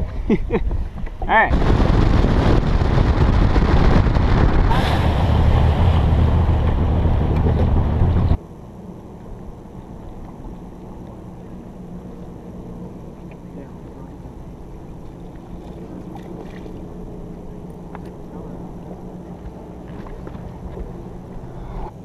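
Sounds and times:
boat engine rumble: 0.0 - 22.0
wind buffeting microphone: 0.0 - 22.0
faint steady low hum: 8.3 - 22.0.

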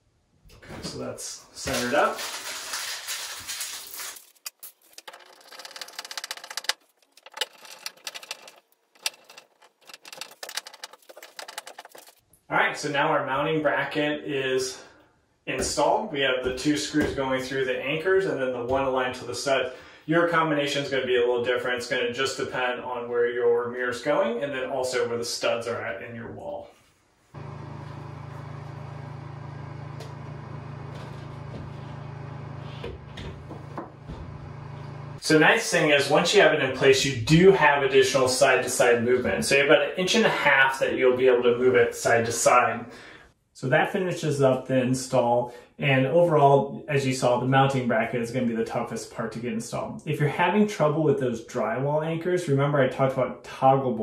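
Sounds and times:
steady low machine hum: 27.4 - 35.2.

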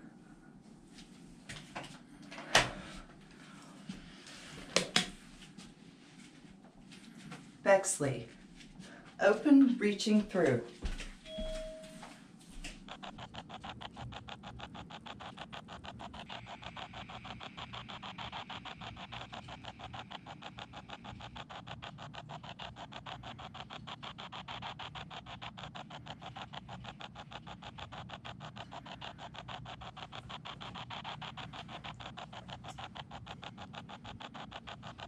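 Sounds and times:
rapid chopping radio static: 12.6 - 35.0.

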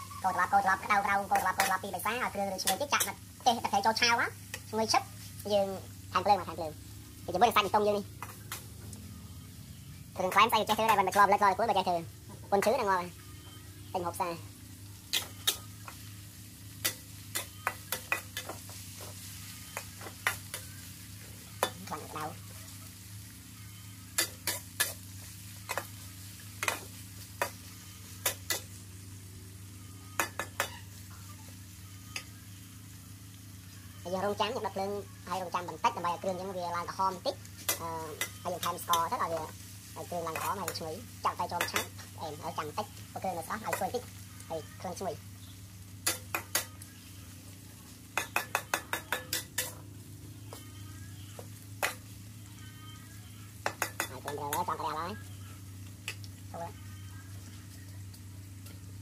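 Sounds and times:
metal utensils scraping a wok: 0.0 - 3.9, 15.1 - 16.1, 16.8 - 22.8, 24.0 - 28.8, 35.5 - 44.1, 46.0 - 46.8, 48.2 - 49.8
frying sizzle: 0.0 - 59.0
low steady hum: 0.0 - 59.0
metal utensil clinking on wok: 24.2 - 25.0.

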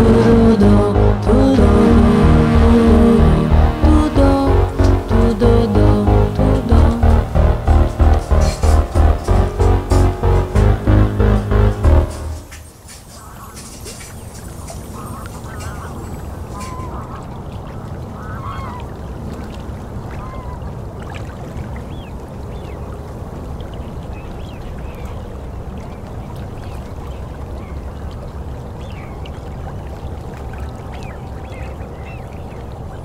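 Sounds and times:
steady low rumble: 0.0 - 17.4
waterfowl calling: 12.5 - 19.0, 20.1 - 20.8.

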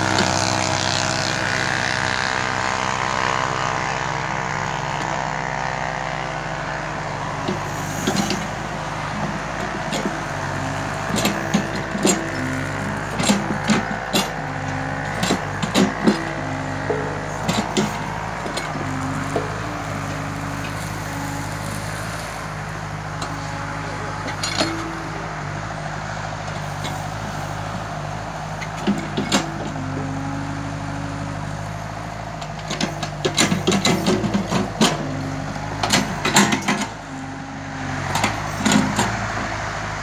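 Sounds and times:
excavator diesel engine running: 0.0 - 40.0
higher hum: 0.0 - 40.0
knocks and clatter: 9.2 - 21.3, 28.6 - 30.2, 32.4 - 37.3.

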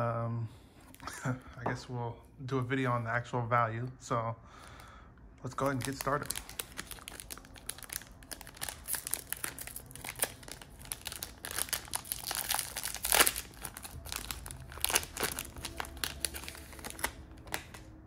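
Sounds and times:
foil wrapper crinkling: 5.5 - 18.0
foil ripping: 5.6 - 17.9.

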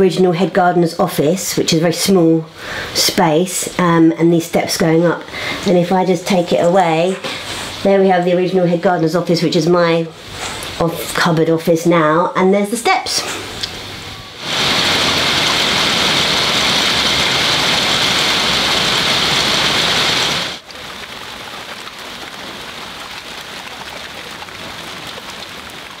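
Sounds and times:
water hissing: 13.2 - 20.6.

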